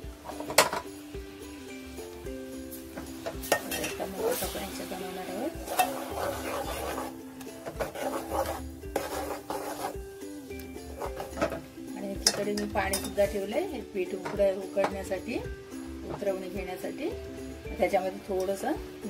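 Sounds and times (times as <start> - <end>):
spoon scraping and clinking pot: 3.4 - 4.5, 5.6 - 10.0, 10.9 - 13.2.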